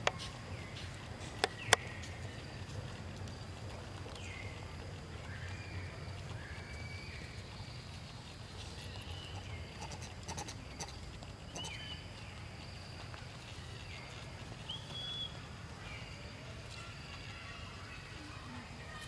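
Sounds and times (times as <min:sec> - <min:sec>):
high chirping animal calls: 0:08.9 - 0:12.2.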